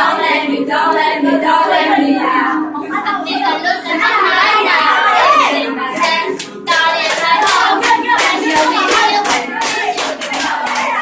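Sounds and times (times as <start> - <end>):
group singing along: 0.0 - 11.0
hand clapping: 6.0 - 11.0.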